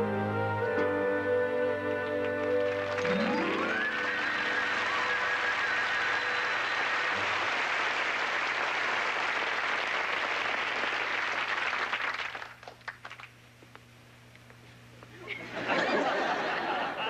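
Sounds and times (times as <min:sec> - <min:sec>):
audience applauding: 0:02.1 - 0:13.4.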